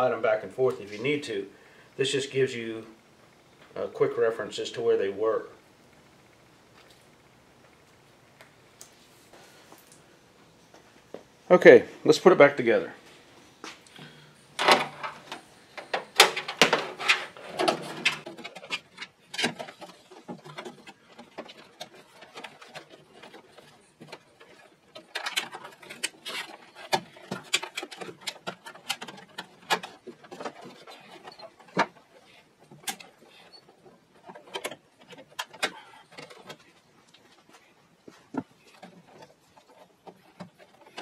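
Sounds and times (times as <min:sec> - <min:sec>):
plastic clips clicking and rustling: 0:14.6 - 0:37.3.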